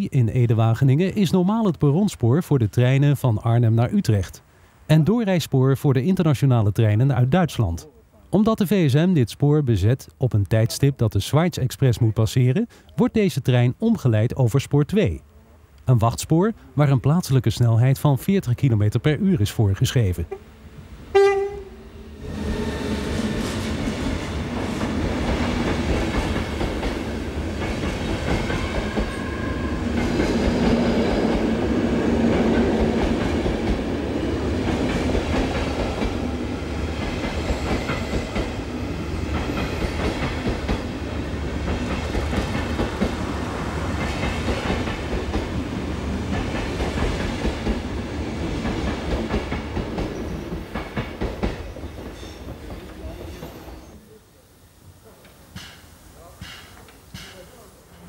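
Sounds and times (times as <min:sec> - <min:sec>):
train coaches rumbling past: 0:20.1 - 0:54.0.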